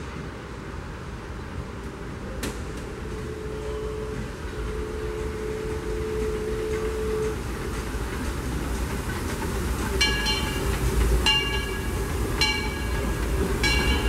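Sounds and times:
steam train rumbling past: 0:00.0 - 0:14.0
steady hum: 0:02.1 - 0:14.0
locomotive bell ringing: 0:03.2 - 0:07.7, 0:10.0 - 0:14.0.

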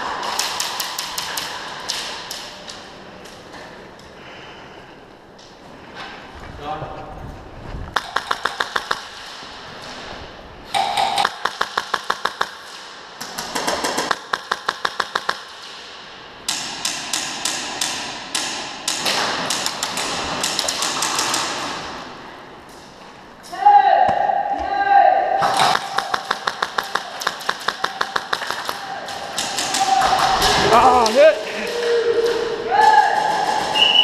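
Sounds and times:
airsoft guns firing full-auto: 0:25.4 - 0:30.3.

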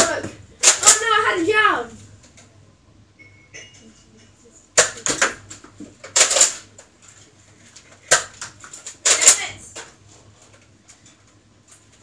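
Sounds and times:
plastic toy blaster clacks: 0:06.2 - 0:06.6, 0:08.1 - 0:09.4.

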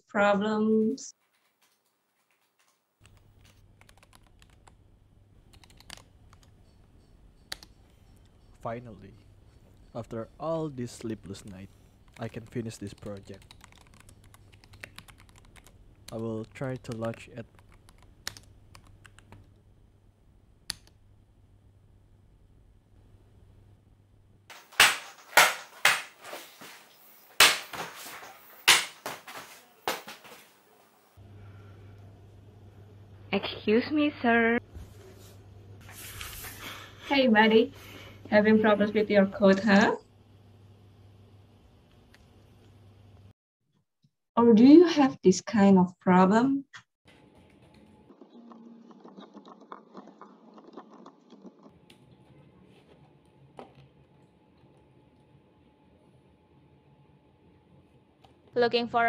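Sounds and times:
typing on computer keyboard: 0:01.2 - 0:04.8, 0:05.5 - 0:06.6, 0:11.4 - 0:19.5
steady low hum: 0:03.0 - 0:24.5, 0:30.6 - 0:43.3.

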